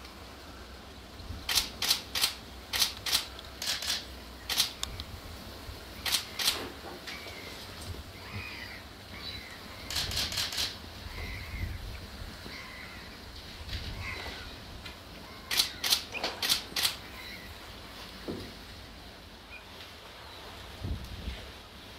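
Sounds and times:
camera shutter clicks: 1.5s - 4.9s, 6.0s - 6.6s, 9.9s - 10.8s, 15.5s - 17.0s.

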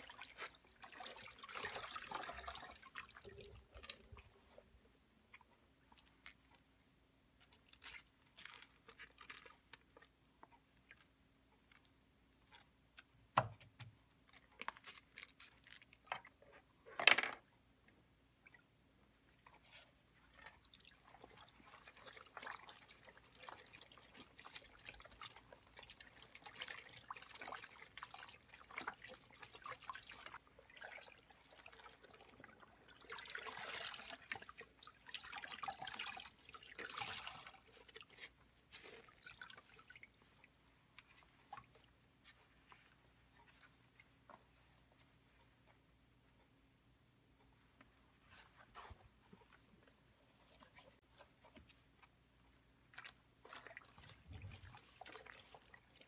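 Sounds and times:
wet fabric sloshing and squelching: 0.0s - 13.1s, 14.2s - 16.6s, 18.3s - 46.0s, 47.8s - 56.0s
faint crinkles and taps: 5.3s - 16.7s, 40.9s - 46.7s, 47.3s - 52.6s.

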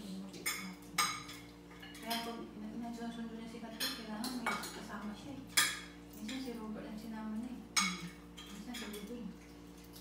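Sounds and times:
cutlery clinking against plates: 0.3s - 2.4s, 3.7s - 6.7s, 7.7s - 10.0s.

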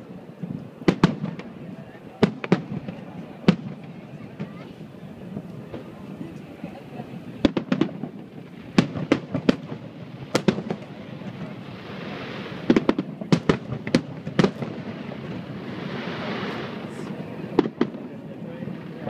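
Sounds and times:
fireworks bursting with sharp bangs: 0.2s - 19.0s
fireworks hiss: 7.2s - 19.0s.

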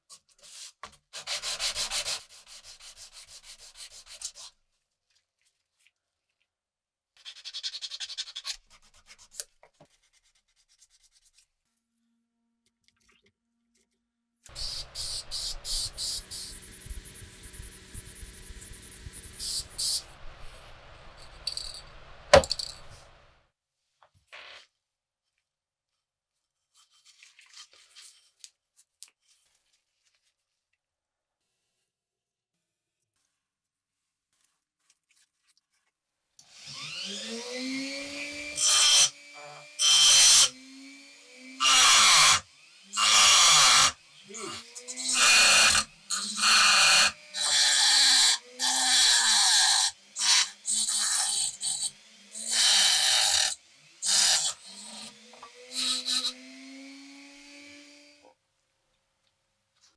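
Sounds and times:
scrubbing metal part by hand: 14.5s - 20.2s
rotary tool spinning: 14.5s - 23.0s.

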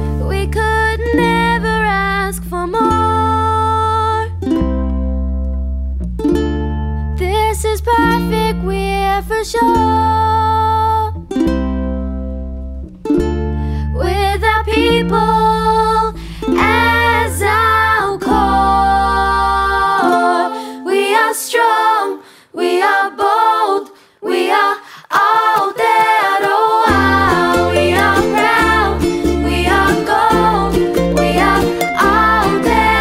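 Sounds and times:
ukulele backing music: 0.0s - 23.2s, 24.3s - 33.0s
voices singing: 14.0s - 33.0s.

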